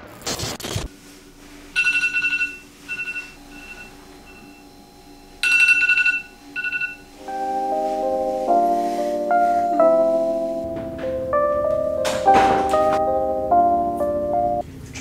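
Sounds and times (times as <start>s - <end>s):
phone alarm pulsing beeps: 1.8s - 4.7s, 5.4s - 7.1s
tv static hiss: 2.6s - 5.5s, 6.2s - 10.7s
music: 7.1s - 14.6s.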